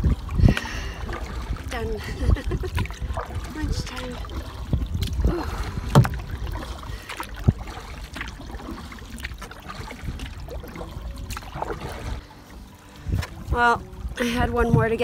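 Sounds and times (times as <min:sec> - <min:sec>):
paddle strokes in water: 0:00.0 - 0:15.0
wind rumble on microphone: 0:00.0 - 0:15.0.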